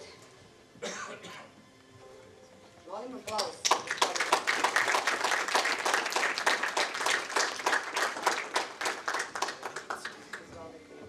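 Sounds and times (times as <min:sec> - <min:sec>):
audience applauding: 0:03.4 - 0:10.5.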